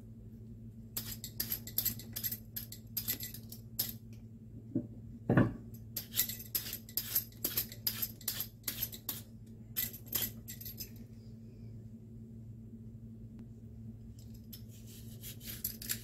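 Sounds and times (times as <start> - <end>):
low steady hum: 0.0 - 16.0
peeler scraping watermelon rind: 14.7 - 16.0.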